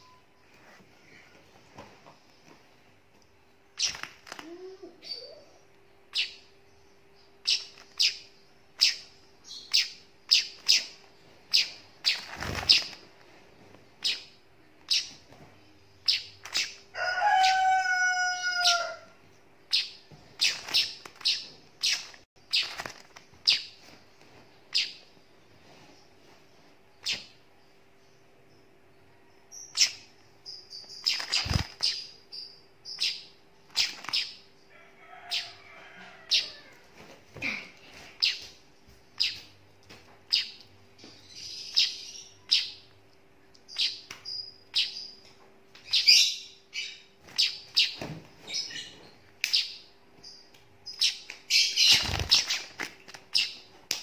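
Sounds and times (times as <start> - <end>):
faint steady hum: 0.0 - 54.0
young bird chirping: 3.8 - 6.5, 7.1 - 13.0, 14.0 - 15.3, 16.0 - 19.0, 19.7 - 23.8, 24.7 - 25.1, 29.5 - 34.5, 39.2 - 39.5, 40.3 - 42.9, 43.6 - 53.7.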